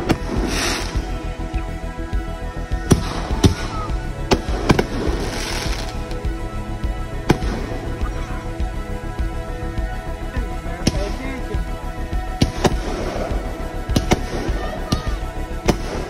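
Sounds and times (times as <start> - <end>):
crackling hiss of sparkle: 0.0 - 2.0, 4.5 - 6.7
background music: 0.0 - 16.0.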